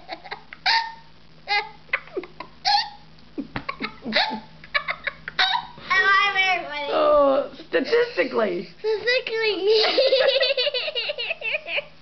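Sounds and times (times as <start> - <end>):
girl laughing: 0.0 - 5.8, 9.7 - 12.0.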